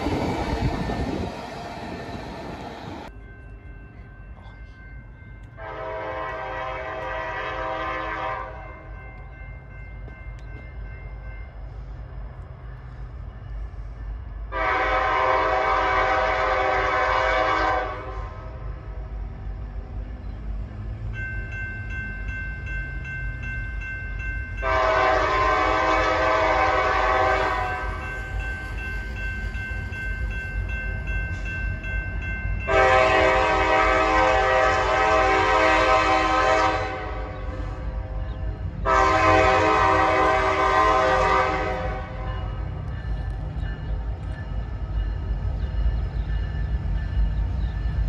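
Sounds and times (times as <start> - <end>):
train rumbling: 0.0 - 48.0
locomotive air horn blasts: 5.6 - 8.7, 14.5 - 18.6, 24.6 - 27.9, 32.7 - 38.2, 38.8 - 42.3.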